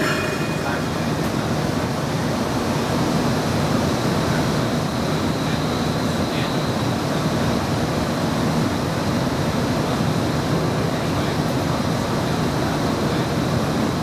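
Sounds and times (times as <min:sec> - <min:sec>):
faint high whine: 0:00.0 - 0:02.8
streetcar rumble: 0:00.0 - 0:14.0.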